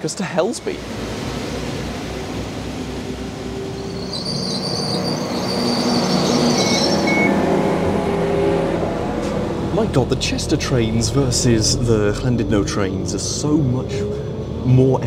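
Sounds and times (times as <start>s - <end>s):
high-pitched tones: 3.5s - 9.2s
short beeps: 6.6s - 7.5s.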